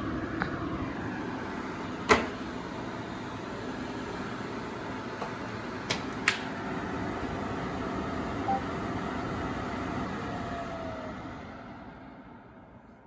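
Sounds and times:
air purifier fan blowing: 0.0s - 13.0s
short beep: 8.5s - 8.7s.

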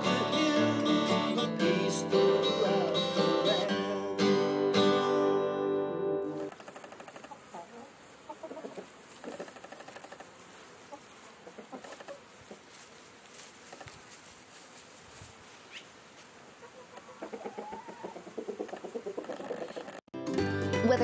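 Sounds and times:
chickens clucking: 6.6s - 12.8s, 15.6s - 20.0s.

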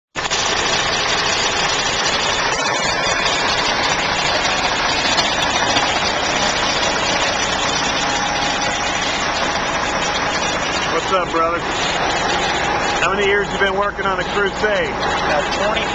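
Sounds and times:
idling vehicle engines and traffic: 0.1s - 15.9s.

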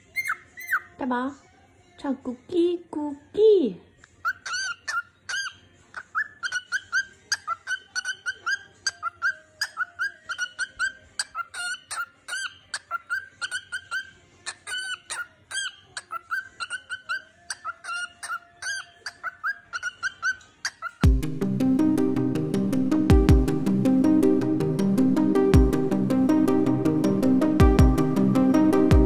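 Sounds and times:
cockatiel chirping: 0.0s - 1.0s, 4.1s - 21.0s.

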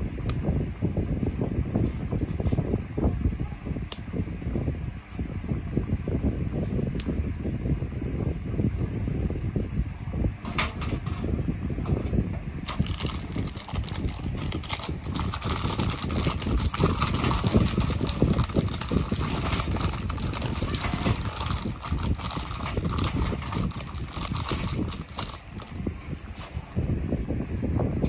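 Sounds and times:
plastic bag crinkling: 12.7s - 25.9s.

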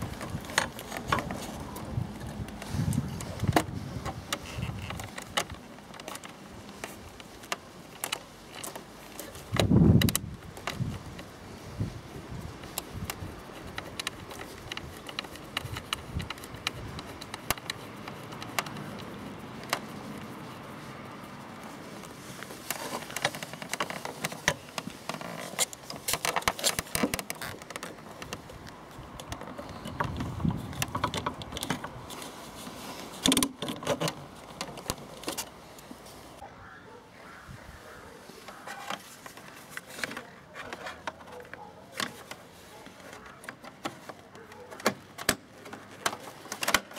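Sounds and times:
plastic and metal clicks and taps: 12.7s - 19.9s.

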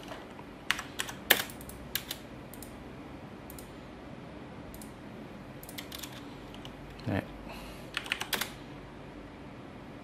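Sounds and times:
keyboard and mouse clicks: 0.0s - 2.8s, 4.7s - 5.0s, 5.6s - 6.8s, 7.9s - 8.6s
faint room hum: 0.0s - 10.0s.

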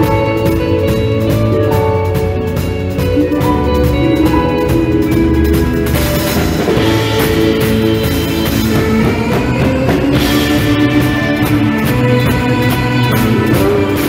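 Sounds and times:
bass guitar: 0.0s - 14.0s
drum kit: 0.0s - 14.0s
electric lead guitar: 0.0s - 14.0s
keyboard: 0.0s - 14.0s.

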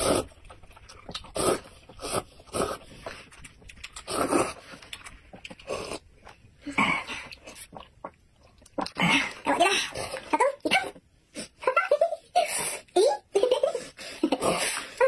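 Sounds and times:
slurping noodles: 0.0s - 0.5s, 1.1s - 3.3s, 3.9s - 4.9s.

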